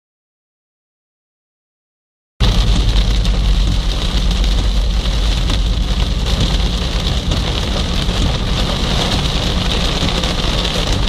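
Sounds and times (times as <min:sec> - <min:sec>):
car rumbling on wet road: 0:02.4 - 0:11.0
heavy rain on car windscreen: 0:02.4 - 0:11.0.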